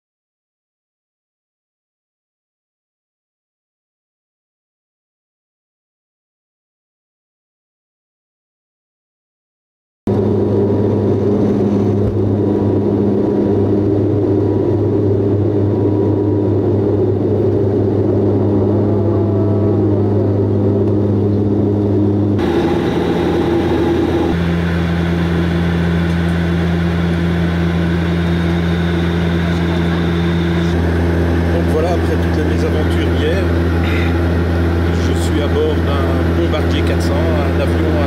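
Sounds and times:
aircraft cabin propeller drone: 10.1s - 38.0s.

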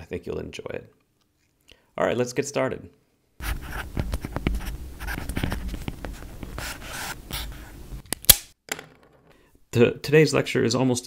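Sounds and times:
scratchy pen strokes on tablet: 3.4s - 7.8s.

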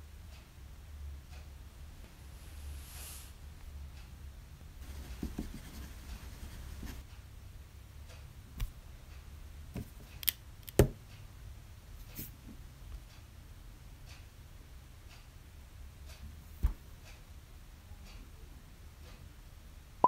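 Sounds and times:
pencil scratching on paper: 4.8s - 7.0s.

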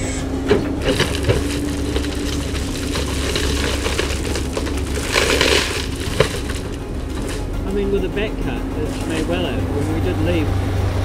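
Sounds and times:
excavator engine running: 0.0s - 11.0s
wood cracking and splintering: 0.5s - 8.0s, 8.8s - 9.6s.

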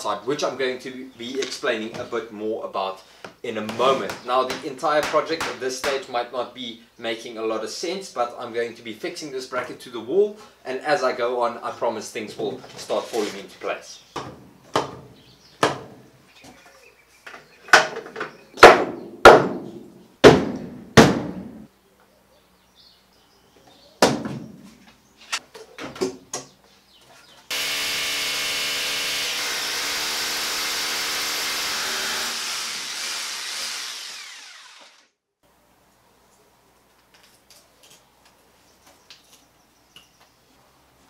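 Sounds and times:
knocks on wooden bracket: 17.7s - 21.5s
power drill boring into wall: 27.5s - 35.1s.

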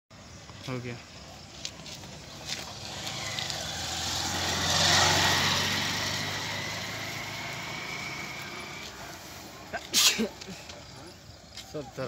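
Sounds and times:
vehicle passing by: 1.8s - 9.9s.

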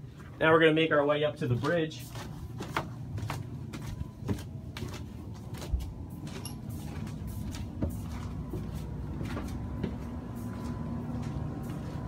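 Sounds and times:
low steady hum: 0.0s - 12.0s
footsteps on stairs: 1.5s - 12.0s.

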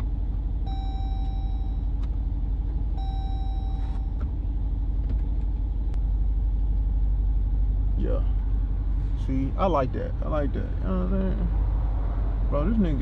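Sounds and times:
car engine rumbling: 0.0s - 13.0s.

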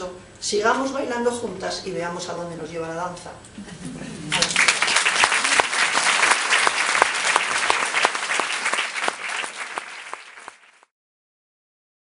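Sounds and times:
audience applauding: 4.3s - 10.9s.

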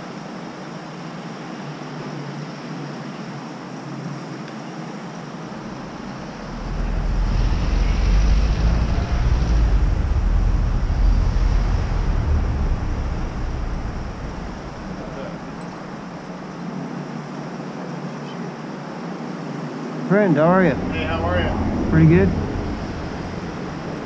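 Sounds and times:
vehicle engine rumble: 5.4s - 17.2s, 20.2s - 24.0s.

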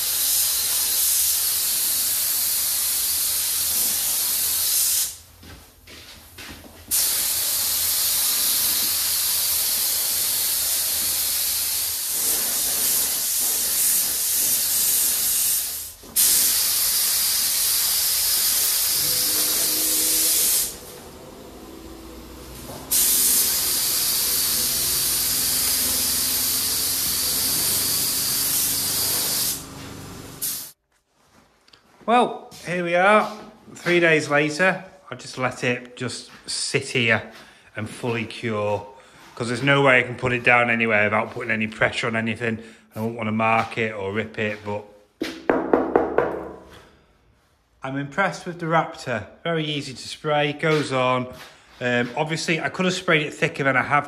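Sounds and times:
spray gun hissing: 0.0s - 5.2s, 6.9s - 30.8s.

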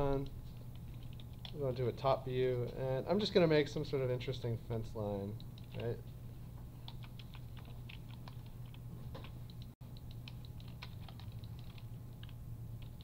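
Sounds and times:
computer keyboard typing: 0.0s - 1.8s, 5.3s - 6.0s, 6.8s - 13.0s
low electrical hum: 0.0s - 13.0s.

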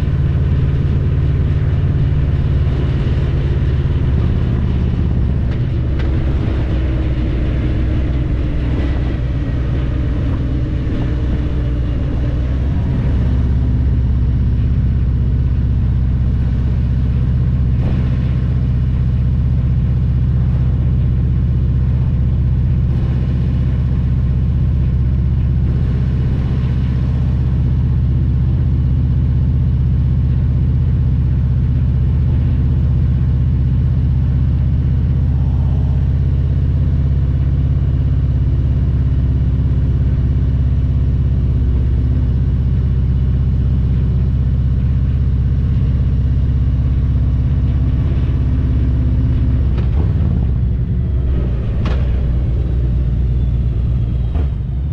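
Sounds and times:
motorcycle engine deep rumble: 0.0s - 54.9s.

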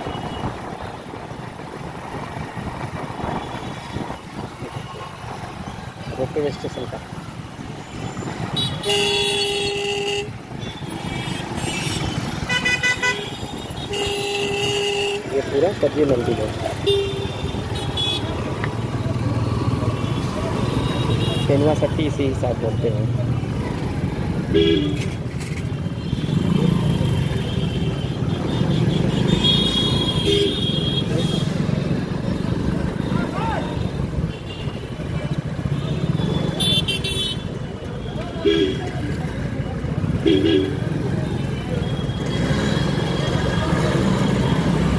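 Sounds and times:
motorcycle engine and road rumble: 0.0s - 44.9s
passing traffic: 0.0s - 44.9s
vehicle horns honking: 8.5s - 15.4s, 16.7s - 18.4s, 26.0s - 31.6s, 35.7s - 37.6s, 40.2s - 40.9s.

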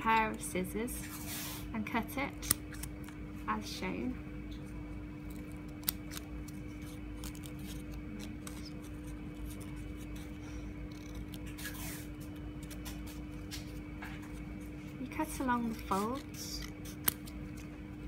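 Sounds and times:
steady low hum: 0.0s - 18.0s
scissors snipping paper: 2.4s - 3.2s, 5.3s - 13.7s, 15.2s - 17.7s.

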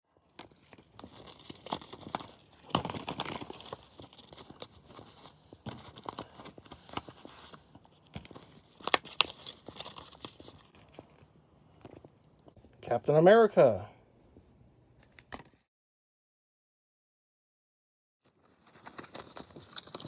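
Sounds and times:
foil wrappers crinkling: 0.3s - 11.3s, 18.3s - 20.0s
gum pack tearing open: 0.4s - 11.0s, 18.5s - 20.0s.

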